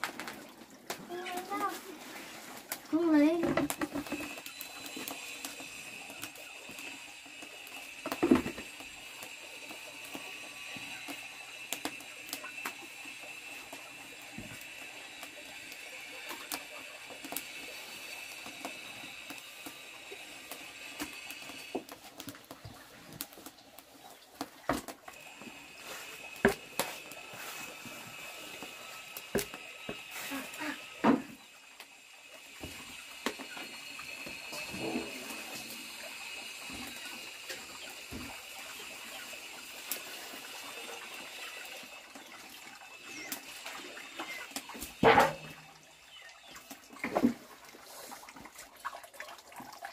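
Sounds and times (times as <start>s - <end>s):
high-pitched drone: 32.6s - 38.2s.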